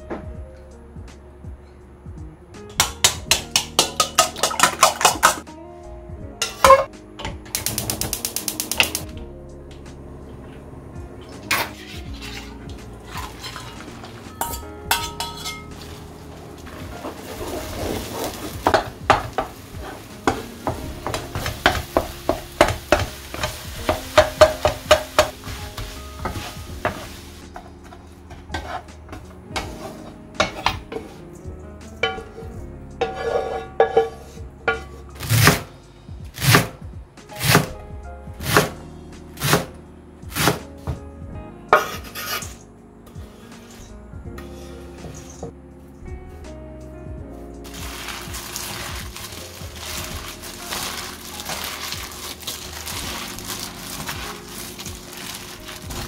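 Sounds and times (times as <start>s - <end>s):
light background music: 0.0s - 56.0s
spatula tapping and scraping pan: 2.7s - 5.4s, 18.2s - 28.8s, 33.0s - 34.9s
eggs sizzling in a frying pan: 17.1s - 27.4s
knife chopping on cutting board: 40.4s - 40.6s.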